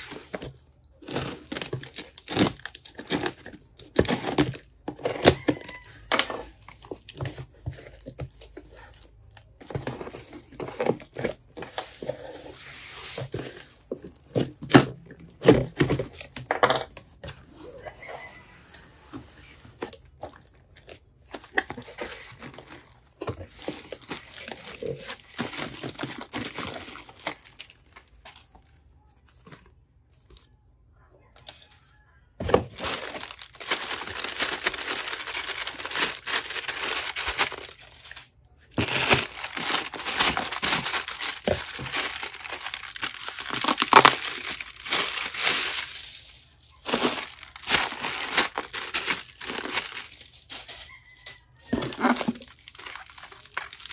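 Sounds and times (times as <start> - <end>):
plastic air pillows crinkling: 0.0 - 5.9, 19.8 - 29.6, 32.5 - 53.9.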